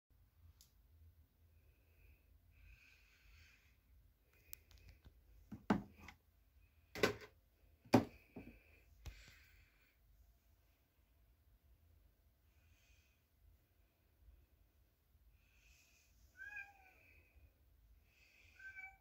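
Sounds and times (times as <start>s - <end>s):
faint room hiss: 8.5s - 19.0s.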